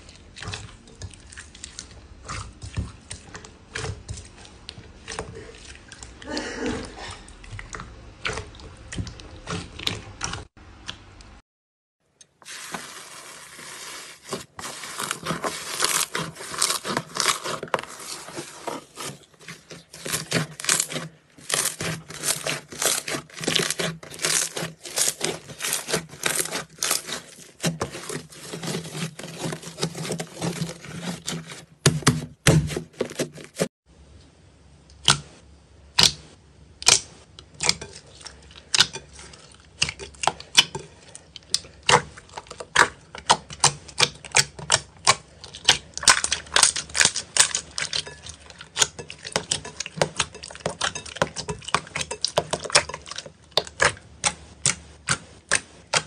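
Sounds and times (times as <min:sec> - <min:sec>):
slime crackling and popping: 0:19.9 - 0:28.8.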